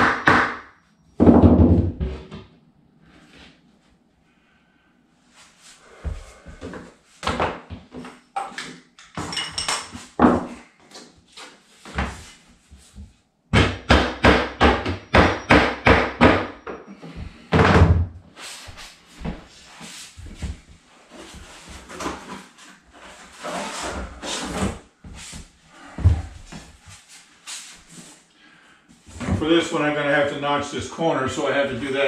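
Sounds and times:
hammer knocking flooring planks: 0:00.0 - 0:00.6, 0:01.2 - 0:02.4, 0:13.5 - 0:18.2.

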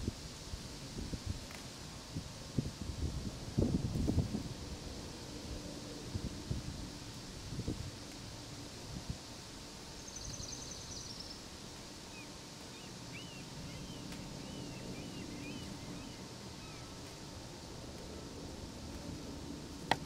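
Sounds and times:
outdoor background noise: 0:00.0 - 0:20.0
small birds chirping: 0:09.9 - 0:17.2.

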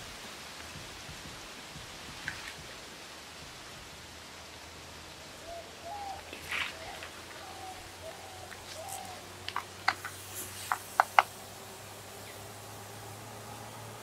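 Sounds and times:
steady outdoor hiss: 0:00.0 - 0:14.0
bird calling: 0:05.2 - 0:12.6.

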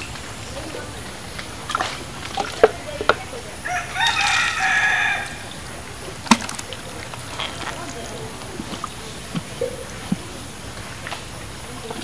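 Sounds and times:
rooster crowing: 0:03.6 - 0:05.5
hands splashing in muddy water: 0:06.1 - 0:10.5.

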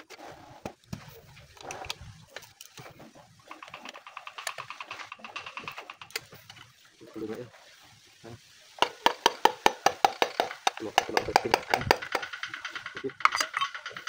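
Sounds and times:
metal clicks and scrapes of engine parts: 0:01.4 - 0:06.8, 0:10.2 - 0:14.0.

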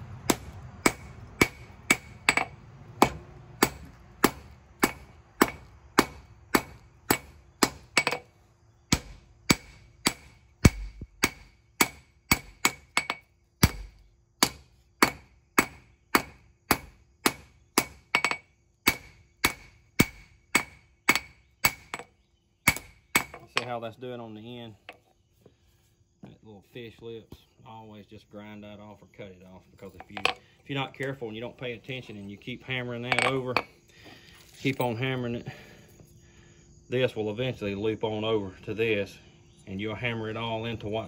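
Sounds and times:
hammer striking steel on anvil: 0:00.3 - 0:08.2.

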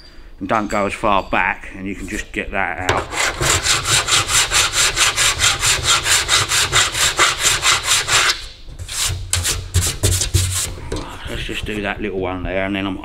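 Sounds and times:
file rasping across metal panel: 0:02.9 - 0:11.9.

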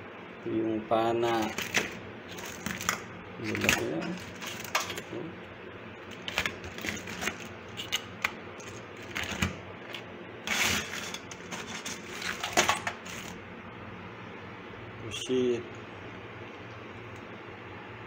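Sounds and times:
crab shells scraping: 0:01.3 - 0:05.1, 0:06.1 - 0:13.4
crab shells clattering in sink: 0:01.4 - 0:05.1, 0:06.1 - 0:13.4.

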